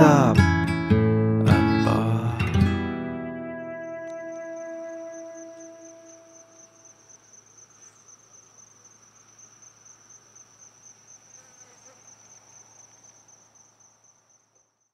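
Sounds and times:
crickets chirring: 3.5s - 14.9s.

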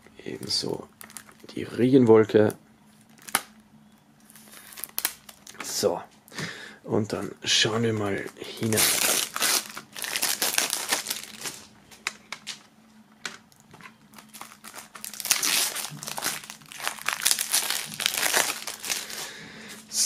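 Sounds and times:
plastic shrink-wrap crinkling: 0.4s - 1.8s, 2.9s - 3.6s, 4.2s - 5.8s, 7.8s - 11.7s, 14.1s - 19.3s.

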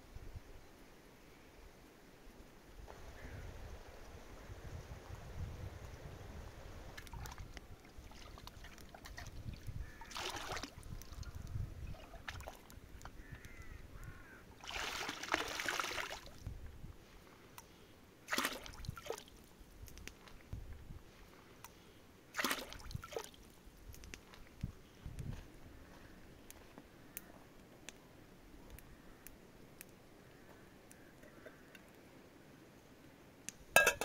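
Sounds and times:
water splashing and pouring: 7.0s - 11.3s, 11.9s - 12.8s, 14.6s - 16.4s, 18.3s - 19.3s, 22.3s - 23.4s.

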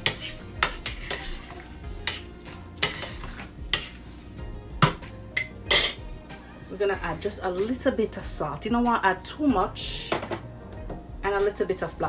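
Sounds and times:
spoon stirring macaroni: 0.0s - 4.1s.

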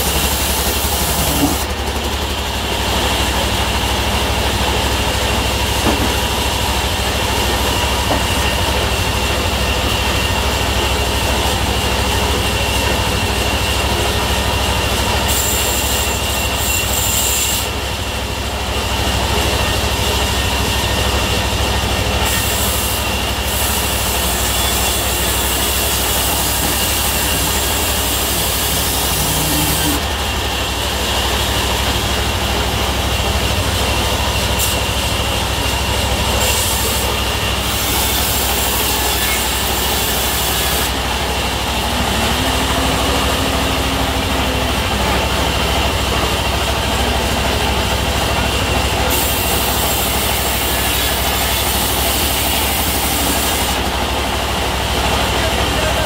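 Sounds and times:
sawmill engine droning: 0.0s - 56.0s
saw blade hissing whine: 15.3s - 17.8s, 22.2s - 48.0s, 49.0s - 53.9s.

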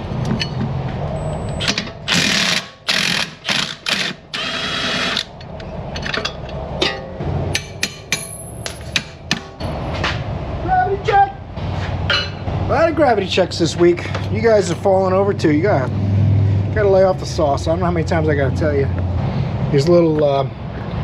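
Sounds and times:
clinks of tools and metal parts: 0.2s - 2.1s, 5.2s - 10.1s, 12.1s - 12.4s
impact wrench hammering on bolt: 6.8s - 9.6s.

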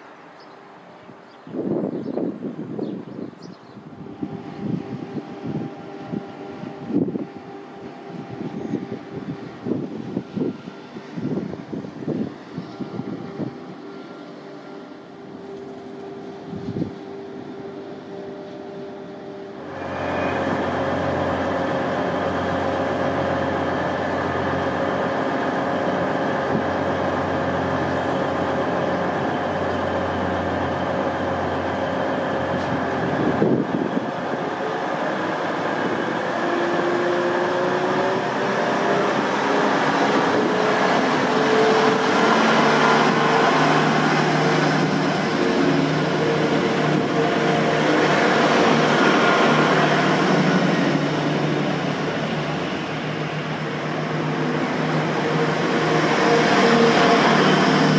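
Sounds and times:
train diesel engines running: 0.0s - 57.9s.

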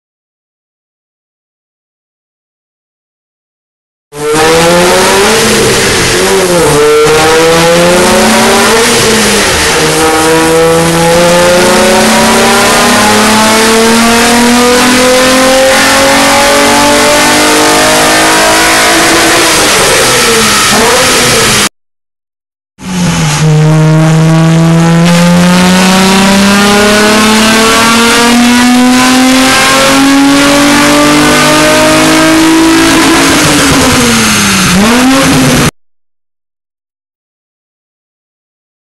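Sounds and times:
car engine revving on dyno: 4.2s - 21.7s, 22.8s - 35.8s.

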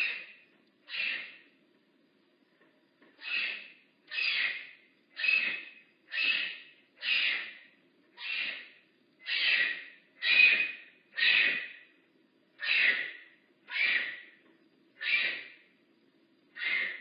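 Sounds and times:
bobcat calling: 0.9s - 1.4s, 3.2s - 7.6s, 8.2s - 11.8s, 12.6s - 14.3s, 15.0s - 15.5s, 16.6s - 17.0s.

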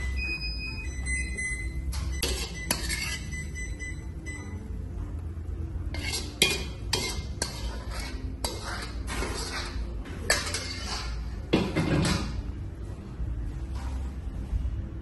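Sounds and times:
metal ladle scraping a wok: 2.2s - 3.4s, 5.9s - 11.4s.

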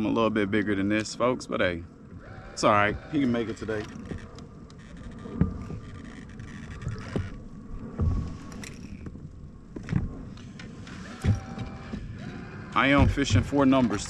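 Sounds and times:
faint clicks: 3.0s - 12.4s.

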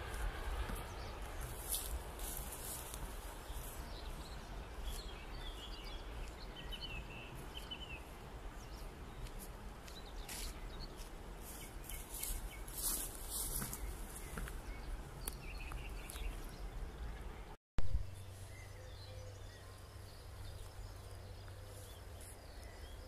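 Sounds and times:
wind rumble on microphone: 0.0s - 23.0s
faint bird chirps: 10.0s - 23.0s.

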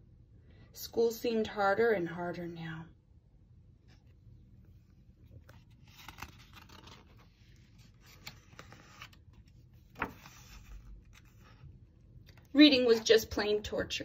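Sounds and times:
paper pages turning: 5.2s - 12.5s.

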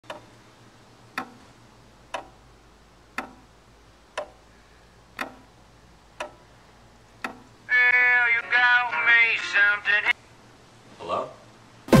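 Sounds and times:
clock ticking: 0.0s - 7.6s.

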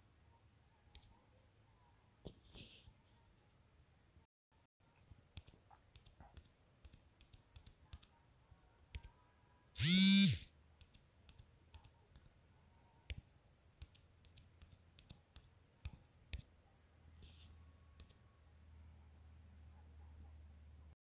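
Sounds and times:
faint low hum: 4.8s - 21.0s.

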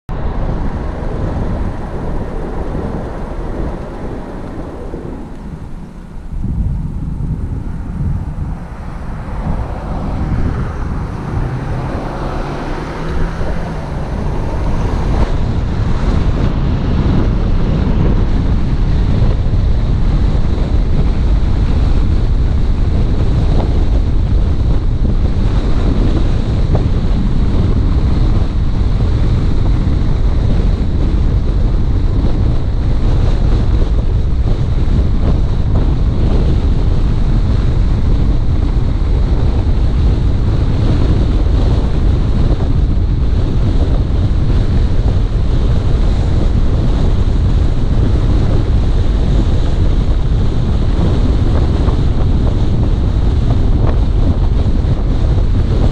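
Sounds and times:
moving car rumble: 0.0s - 55.9s
wind buffeting microphone: 0.1s - 55.9s.

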